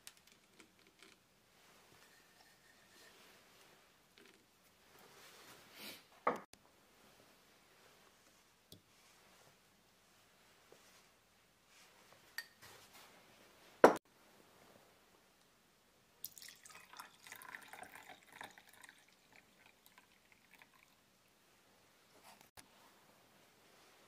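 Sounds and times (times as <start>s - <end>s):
milk pouring into a glass: 16.2s - 21.1s.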